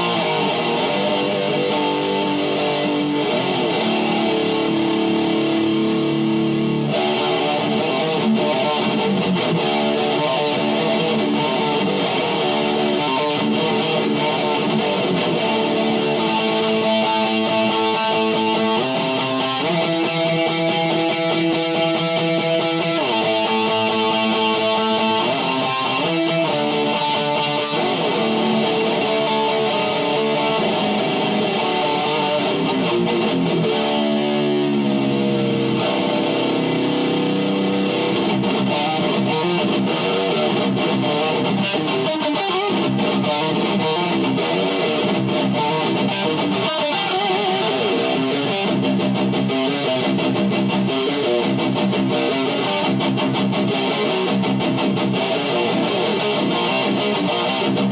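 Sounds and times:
electric guitar playing metal riffs: 0.0 - 57.9.

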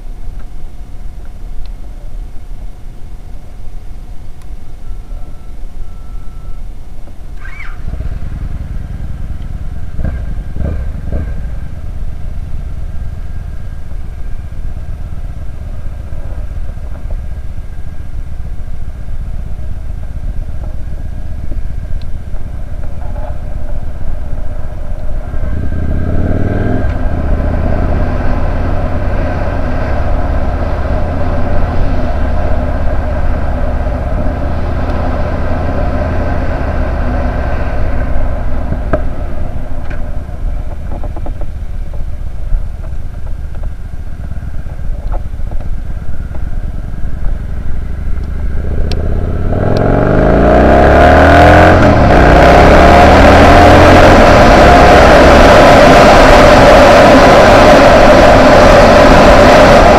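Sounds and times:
motorcycle engine running: 4.8 - 59.9.

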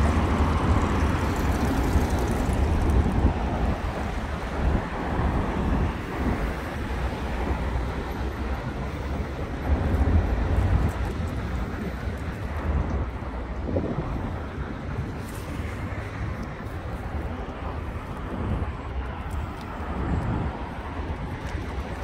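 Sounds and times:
road traffic hum: 0.0 - 22.0
wind buffeting microphone: 0.0 - 22.0.

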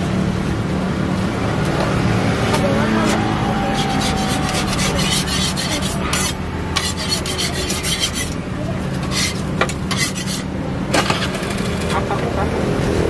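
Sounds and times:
metal spatula scraping griddle: 3.0 - 11.9.

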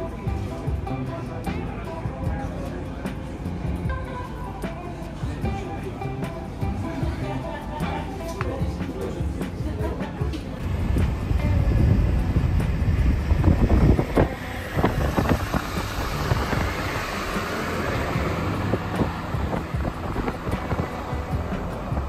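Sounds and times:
car driving rumble: 0.0 - 22.0
wind buffeting microphone: 10.6 - 22.0.

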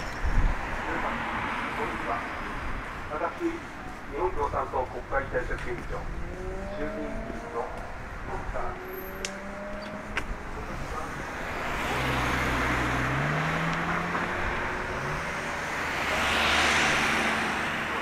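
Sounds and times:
vehicle driving past: 6.1 - 7.8, 8.7 - 10.1.

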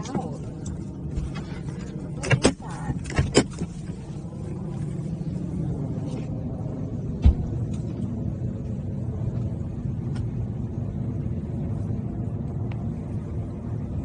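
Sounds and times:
car door opening clicks: 2.2 - 3.8
car door shutting thud: 7.2 - 7.6.

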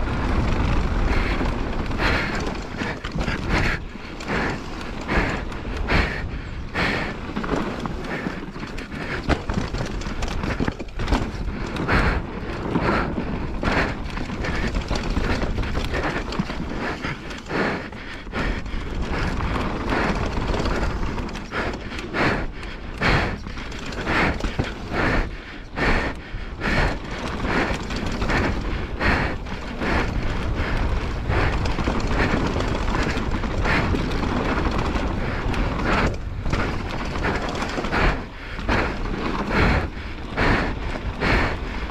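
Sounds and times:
bike rattling and knocking: 0.0 - 41.9
tyres on loose dirt: 0.0 - 41.9.

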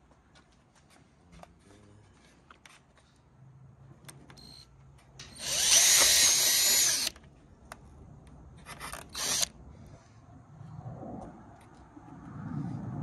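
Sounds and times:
cordless drill whining: 5.3 - 7.2, 8.7 - 9.5.

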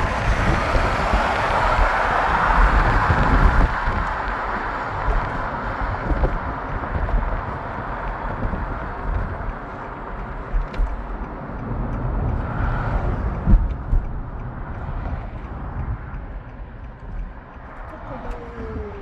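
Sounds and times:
car road and wind noise: 0.0 - 19.0.

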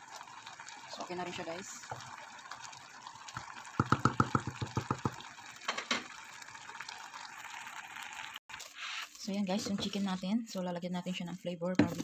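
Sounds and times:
soup simmering: 0.0 - 9.3
wooden spoon knocking metal pot: 3.8 - 6.1.

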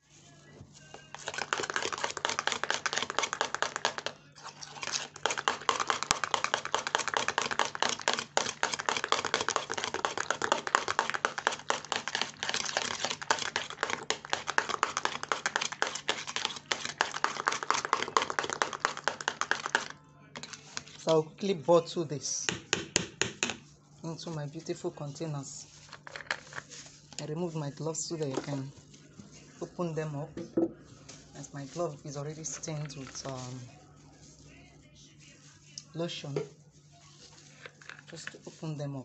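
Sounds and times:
wet clicking and squelching lotion: 1.2 - 19.9.

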